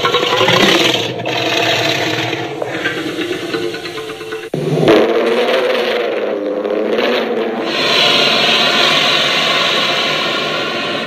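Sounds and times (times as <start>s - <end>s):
dinosaur roar: 0.3s - 11.0s.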